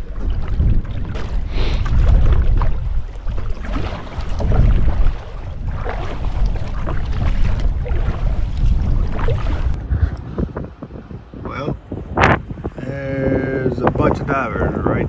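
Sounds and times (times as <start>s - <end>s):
water splashes: 0.0s - 10.3s
wind buffeting microphone: 0.0s - 15.0s.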